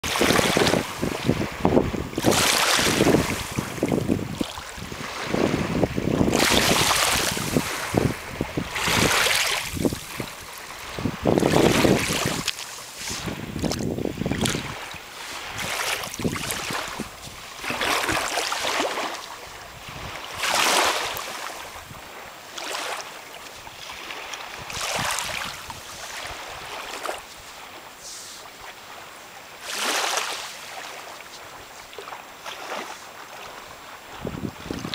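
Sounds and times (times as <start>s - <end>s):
wind buffeting microphone: 0.0s - 18.7s, 19.5s - 22.2s, 24.0s - 26.8s, 34.0s - 34.9s
small waves washing over sand: 0.0s - 34.9s.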